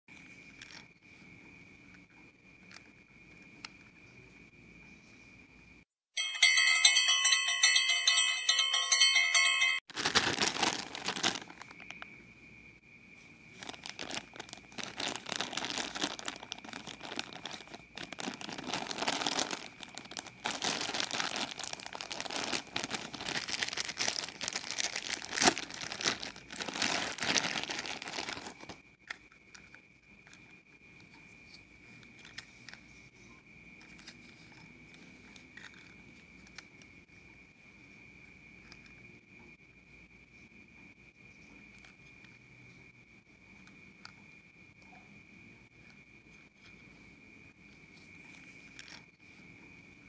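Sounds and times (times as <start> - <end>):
jingle of ringing tones: 6.2 - 10.8
plastic packet crinkling: 9.9 - 12.0, 13.6 - 28.8.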